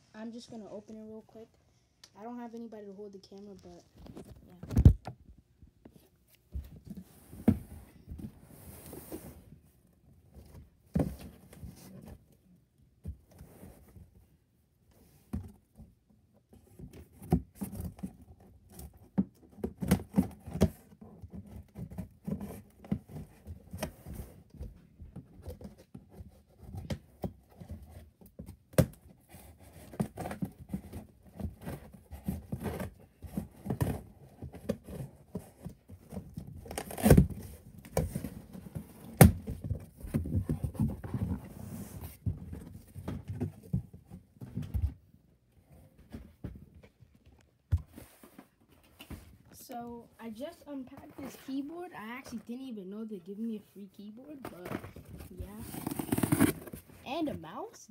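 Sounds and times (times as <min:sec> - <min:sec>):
hands handling cardboard box: 0:54.3 - 0:57.4.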